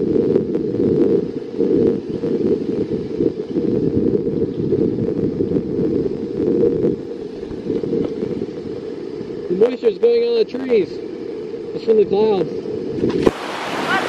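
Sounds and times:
wind rumbling on microphone: 0.0 - 14.0
whitewater rapids roaring: 13.2 - 14.0.

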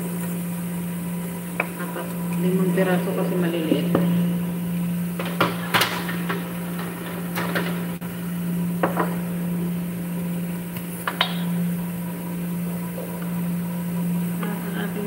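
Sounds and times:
kitchen appliance humming: 0.0 - 15.0
kitchenware knocks and clicks: 5.2 - 7.8.

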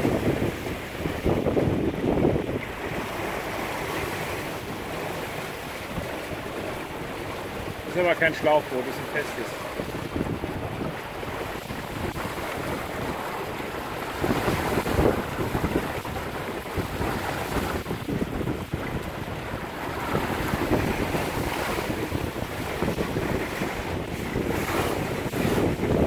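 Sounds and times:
water washing along hull: 0.0 - 26.0
wind gusting across microphone: 0.0 - 26.0.

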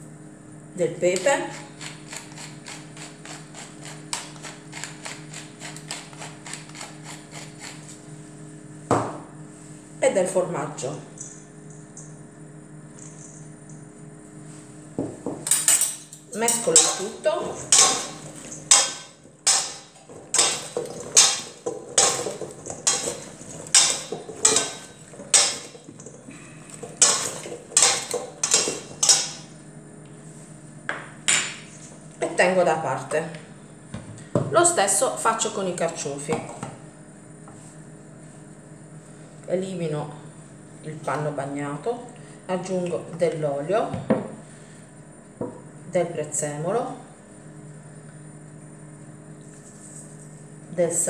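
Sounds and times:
metal spoons clinking against bowl: 15.5 - 25.8, 26.8 - 29.4.

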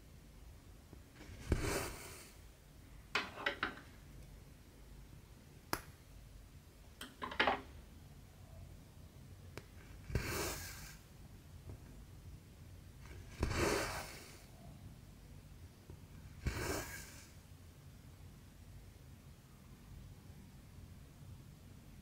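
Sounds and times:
thread rasping through fabric: 1.2 - 2.3, 9.7 - 11.0, 13.0 - 14.3, 16.3 - 17.2.

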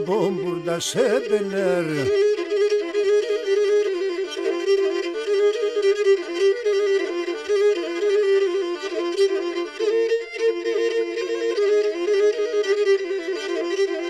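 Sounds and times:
bowed fiddle playing quick melody: 0.0 - 14.0.

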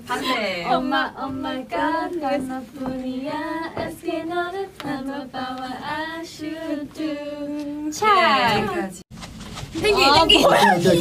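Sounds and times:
woman singing unaccompanied: 0.1 - 9.0.

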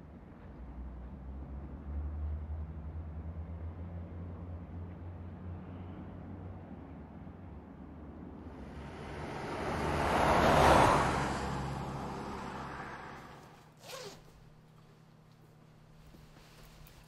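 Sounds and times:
road vehicle passing by: 0.4 - 13.8.

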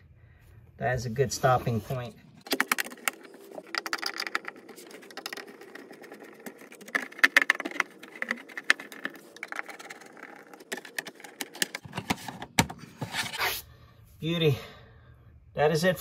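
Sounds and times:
plastic scraping on plastic: 1.6 - 13.6
plastic covers clicking and knocking: 2.4 - 13.2.

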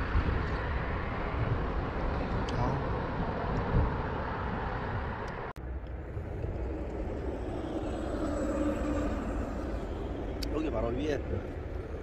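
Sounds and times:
road traffic hum: 0.0 - 12.0
faint engine tone: 5.6 - 12.0.

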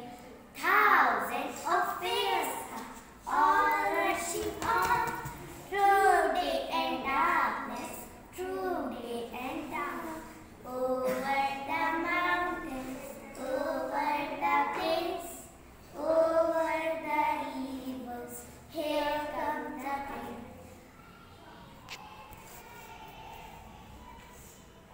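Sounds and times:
girls chanting a poem: 0.0 - 20.7.

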